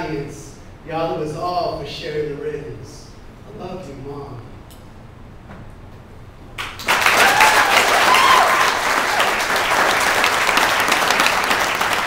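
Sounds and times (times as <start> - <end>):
audience applause: 6.6 - 12.0
shouts and cheers: 7.1 - 9.6.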